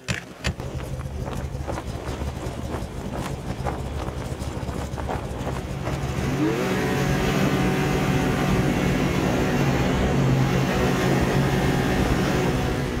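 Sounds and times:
snowmobile engine revving: 0:00.0 - 0:13.0
low rumble: 0:00.3 - 0:10.6.

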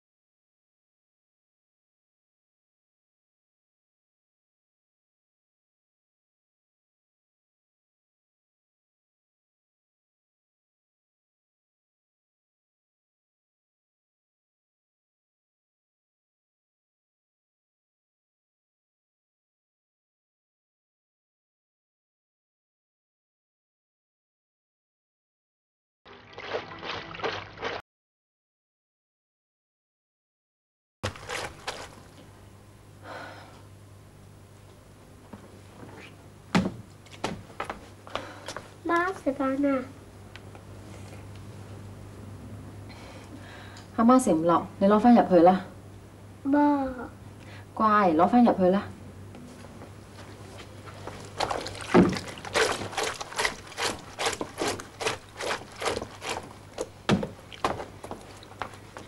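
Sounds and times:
water sloshing: 0:26.1 - 0:27.8, 0:31.0 - 0:32.3, 0:50.2 - 0:59.0
clothes scrubbed on washboard: 0:31.0 - 0:32.2, 0:50.1 - 0:59.0.

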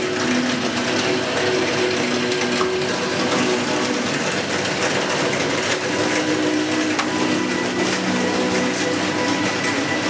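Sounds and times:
bakery machinery running: 0:00.0 - 0:10.0
machinery hum of held tones: 0:05.8 - 0:10.0.

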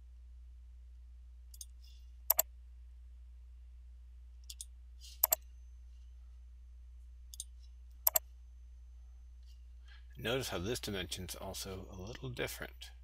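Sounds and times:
low steady hum: 0:00.0 - 0:13.0
computer mouse double clicks: 0:04.5 - 0:05.4.

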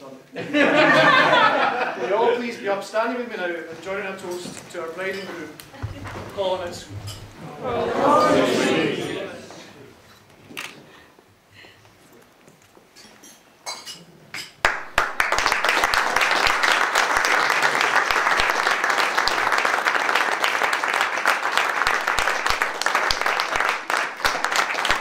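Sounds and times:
guests applauding: 0:14.6 - 0:25.0.

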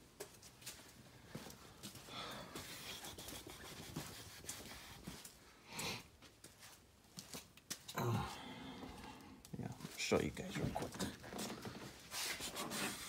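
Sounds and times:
faint footsteps: 0:00.0 - 0:12.5.

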